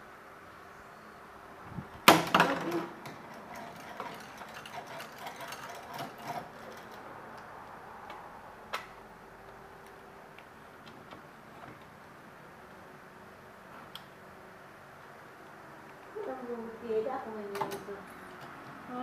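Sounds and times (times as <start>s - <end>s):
plastic parts clicking and rattling: 2.1s - 7.1s.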